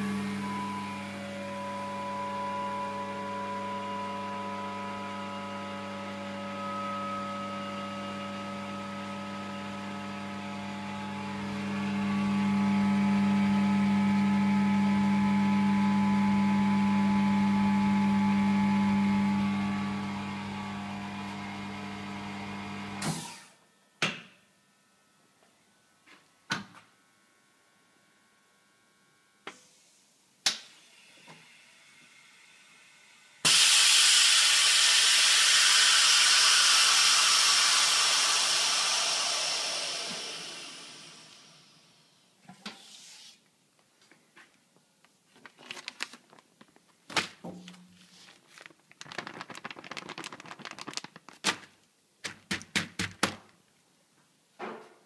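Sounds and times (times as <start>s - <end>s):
air hissing into chamber: 33.4s - 41.6s
plastic crinkling: 45.0s - 52.7s.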